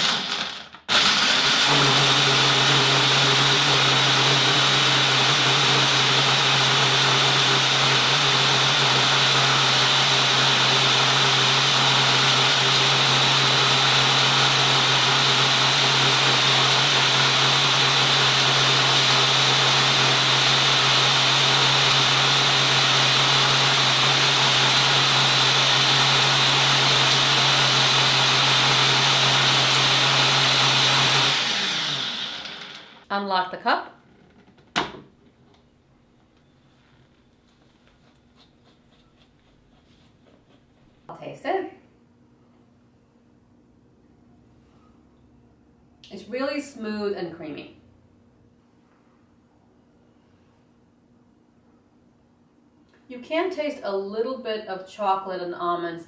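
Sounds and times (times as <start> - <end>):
blender motor running: 0.0 - 33.1.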